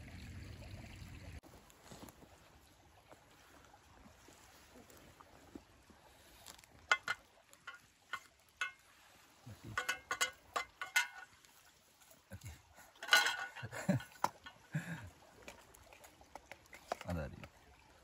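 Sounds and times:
metal dishware clinking: 0:06.9 - 0:08.8, 0:09.6 - 0:11.4, 0:12.9 - 0:14.7.

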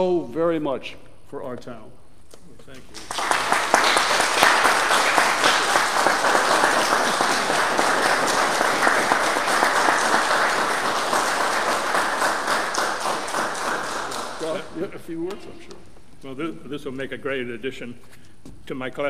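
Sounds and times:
crowd applauding: 0:02.9 - 0:14.9.

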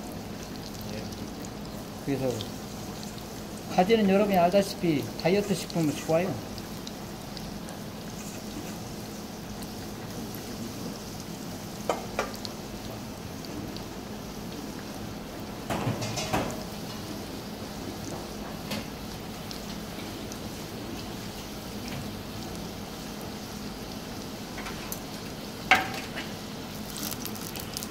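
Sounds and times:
food deep-frying in oil: 0:00.0 - 0:27.9.

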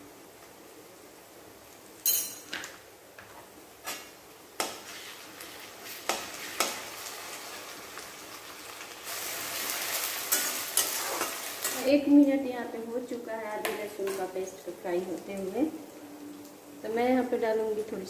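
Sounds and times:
paste sizzling in oil: 0:04.6 - 0:12.1.

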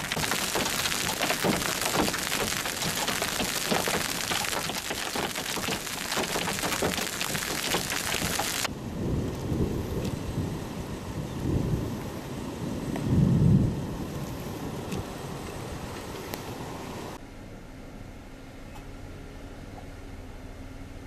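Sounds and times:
rain and hail pelting pavement: 0:00.0 - 0:10.5
low rumble of thunder: 0:08.7 - 0:14.4.

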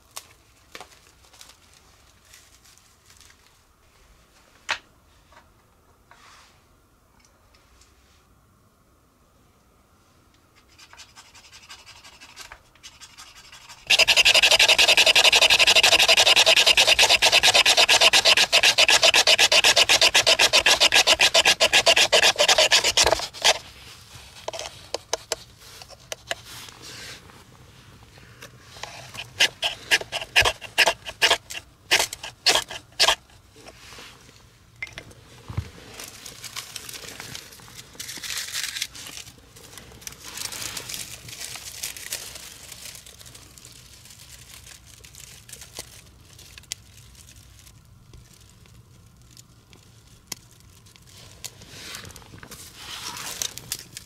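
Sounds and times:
fast rasping strokes: 0:11.0 - 0:23.7, 0:28.8 - 0:33.2
scraping bursts: 0:13.4 - 0:23.6, 0:28.8 - 0:33.2.

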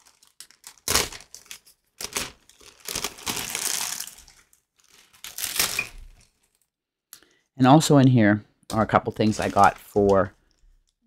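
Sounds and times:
packaging crinkling and rustling: 0:00.0 - 0:06.7, 0:09.1 - 0:11.0.

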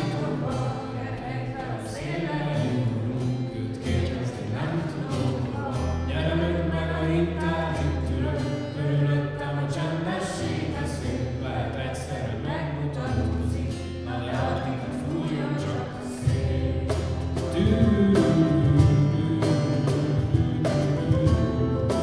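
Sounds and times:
voices singing worship song: 0:00.0 - 0:22.0
band accompaniment: 0:16.1 - 0:22.0.

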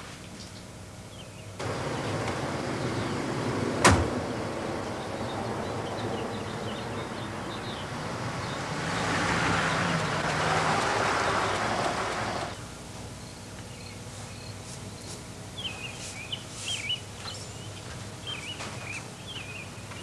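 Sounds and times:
car engine humming: 0:01.6 - 0:12.6
car door slamming: 0:03.8 - 0:04.2.

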